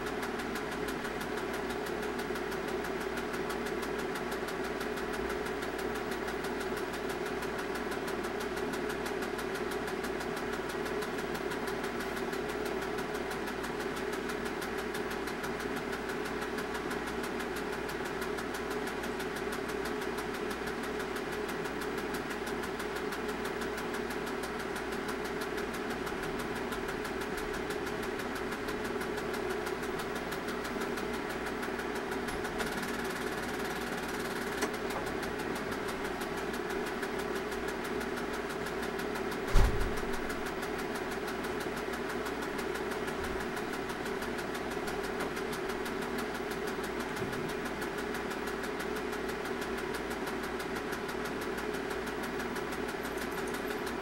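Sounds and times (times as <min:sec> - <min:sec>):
projector motor whirring: 0:00.0 - 0:54.0
projector shutter chattering: 0:26.2 - 0:54.0.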